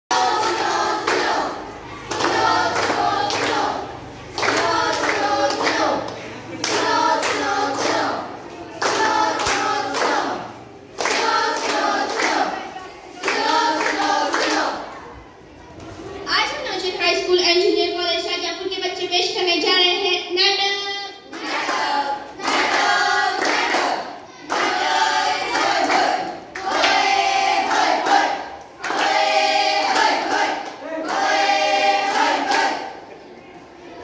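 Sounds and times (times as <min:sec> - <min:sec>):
students singing in unison: 0:00.1 - 0:14.9, 0:21.3 - 0:33.2.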